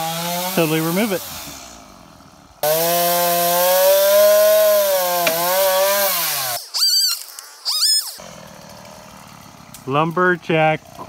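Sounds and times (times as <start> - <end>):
chainsaw cutting at high revs: 0.0 - 9.9
high sliding chirps: 6.6 - 8.2.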